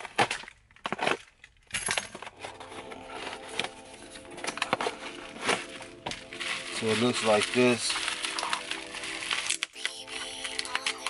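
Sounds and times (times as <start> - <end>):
packing tape and cardboard snapping: 0.0 - 1.6, 4.4 - 11.0
paper packing crackling and rustling: 2.2 - 11.0.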